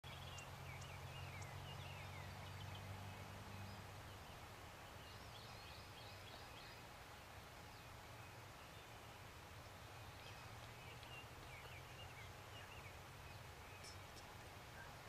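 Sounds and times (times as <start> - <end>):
small birds chirping: 0.0 - 15.0
low steady hum: 0.1 - 15.0.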